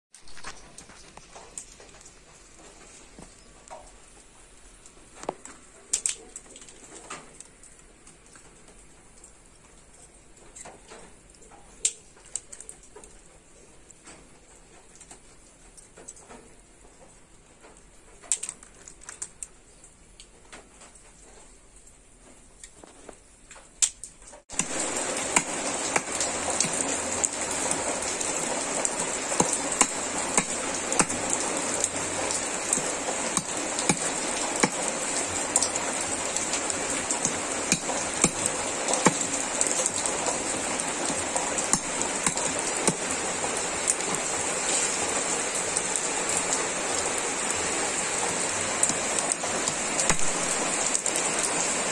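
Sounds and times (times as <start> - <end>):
rain hissing: 0.1 - 12.9, 24.4 - 51.9
knife chopping snail shells: 24.5 - 43.1, 49.6 - 50.5.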